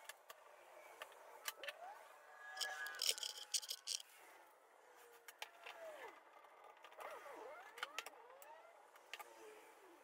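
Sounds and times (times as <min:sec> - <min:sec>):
bar clamp jaws clicking and rattling: 0:02.6 - 0:04.0.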